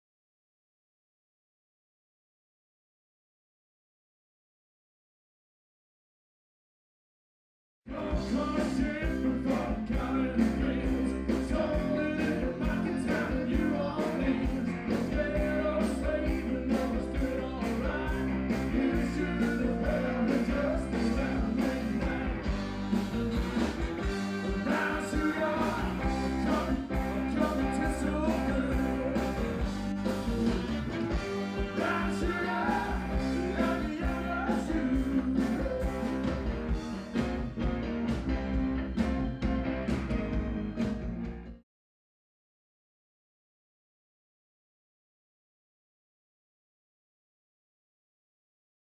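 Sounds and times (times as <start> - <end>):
man singing: 7.9 - 22.6, 24.3 - 29.7, 31.1 - 36.5
keyboard: 7.9 - 41.6
live rock band playing: 7.9 - 41.6
steady drum beat: 8.0 - 41.3.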